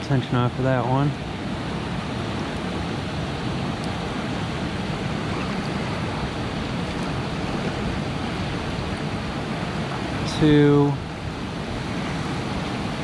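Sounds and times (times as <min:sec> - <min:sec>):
river rapids rushing: 0:00.0 - 0:13.0.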